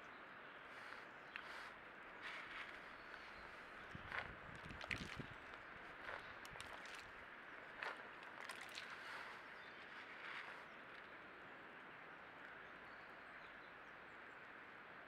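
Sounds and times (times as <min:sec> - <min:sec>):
pheasant pecking in mud: 0:00.8 - 0:11.1.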